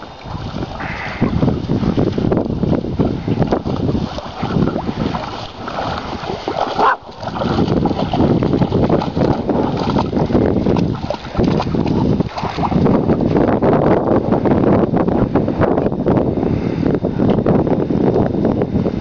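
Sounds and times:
dogs running through wet grass: 0.0 - 13.4
wind noise on microphone: 0.0 - 19.0.

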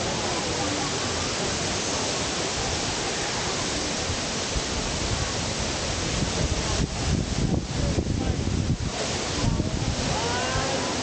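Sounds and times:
waterfall pouring: 0.0 - 11.0.

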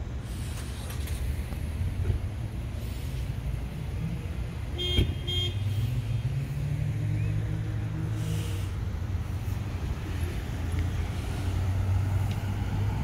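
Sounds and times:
car engines and traffic rumble: 0.0 - 13.0
car horn toots: 4.8 - 5.7.

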